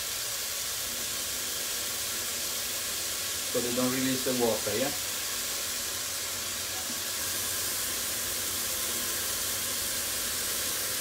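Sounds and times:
mushrooms sizzling in a pot: 0.0s - 11.0s.

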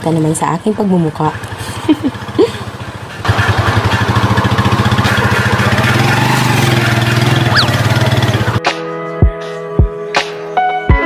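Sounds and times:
motorcycle engine running: 0.0s - 8.6s.

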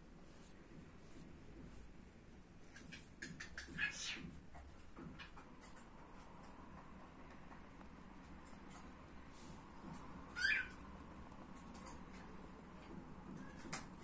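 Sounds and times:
brush strokes on canvas: 0.0s - 2.8s, 8.2s - 12.4s.

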